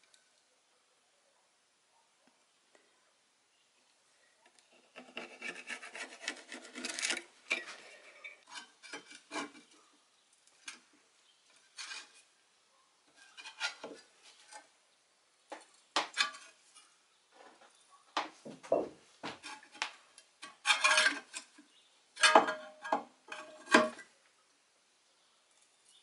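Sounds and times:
pencil scratching on steel: 4.7s - 7.2s
metal scrapes and clinks: 20.4s - 21.5s.

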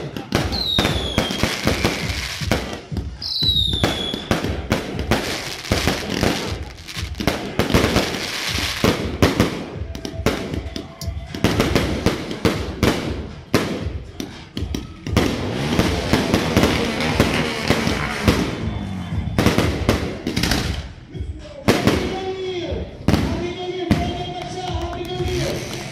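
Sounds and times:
fireworks bangs and crackling: 0.0s - 21.0s, 21.6s - 25.9s
falling firework whistle: 0.5s - 2.4s, 3.2s - 4.3s.

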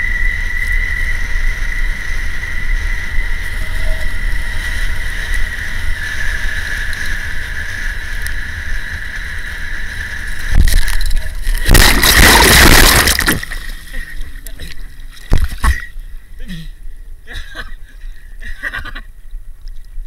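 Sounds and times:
water splashing: 10.5s - 15.9s.

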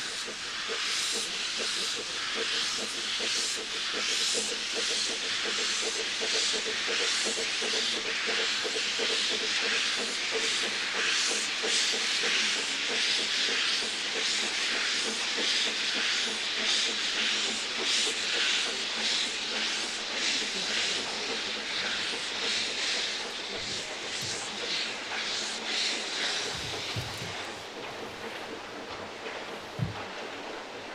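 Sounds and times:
steam hissing from drain cocks: 0.0s - 30.9s
steam locomotive exhaust beats: 0.0s - 30.9s.

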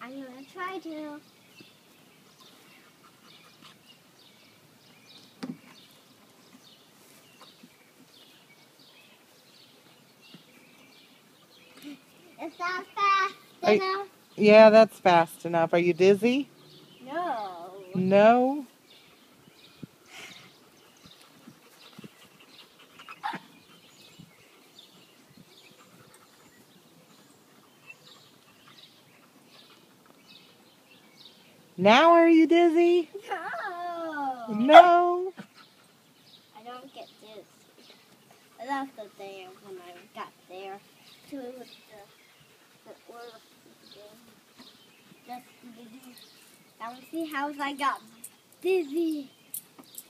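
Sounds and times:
faint birds chirping: 0.0s - 50.0s
dog panting: 2.2s - 4.1s, 20.1s - 30.9s, 35.3s - 49.0s.

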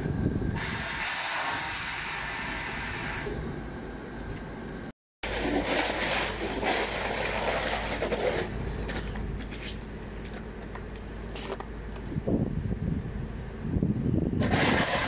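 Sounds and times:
standing train noise: 0.0s - 15.0s.

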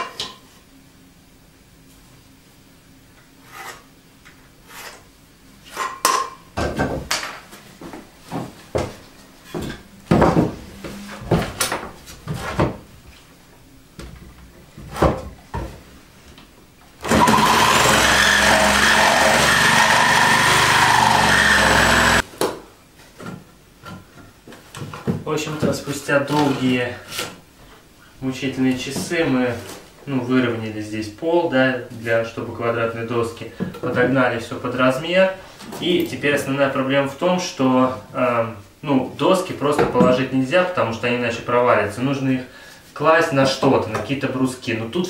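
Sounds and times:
electric jigsaw cutting wood: 17.0s - 22.2s.

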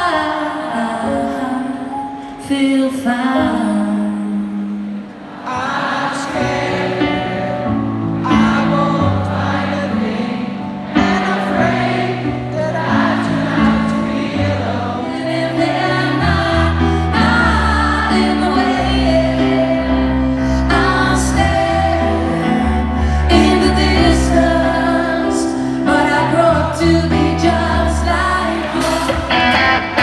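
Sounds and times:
piano chords: 0.0s - 30.0s
person singing: 14.4s - 30.0s.

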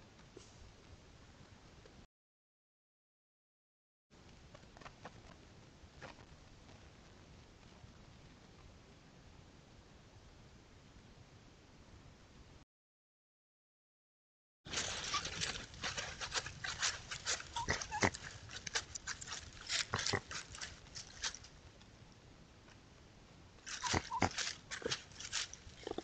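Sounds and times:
raccoons scuffling over leaves: 14.7s - 21.5s, 23.7s - 26.0s
raccoons chittering calls: 14.9s - 21.4s, 23.7s - 26.0s.

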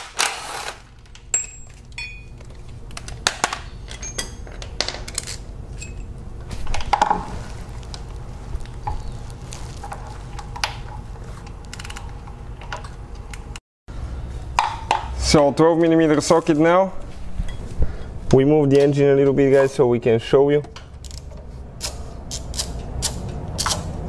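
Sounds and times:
cordless impact driver: 0.0s - 0.9s
steady low hum: 0.3s - 24.0s
metal hand tools clinking: 3.9s - 5.2s.

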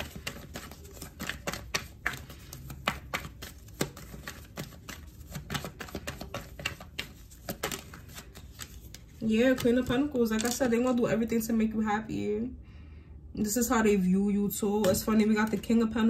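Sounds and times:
cards being shuffled: 0.0s - 10.7s.

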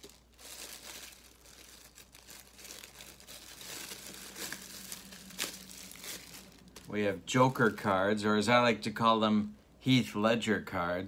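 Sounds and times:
packaging rustling and crinkling: 0.0s - 8.0s.

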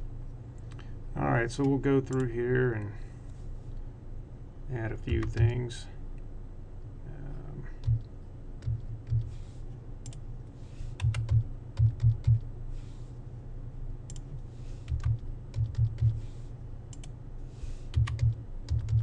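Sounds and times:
keyboard typing: 7.8s - 9.4s, 11.0s - 12.4s, 14.1s - 16.3s, 17.9s - 19.0s.

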